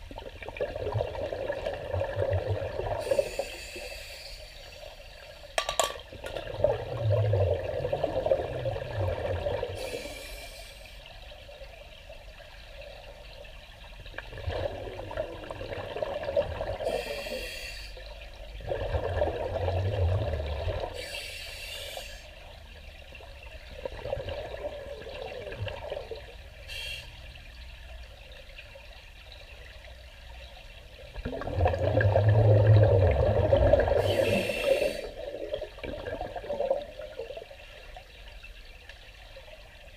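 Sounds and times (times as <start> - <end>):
exhaled bubbles gurgling: 0.0 - 39.9
diver breathing through regulator: 9.8 - 11.0, 16.8 - 18.0, 21.0 - 22.3, 33.9 - 35.2.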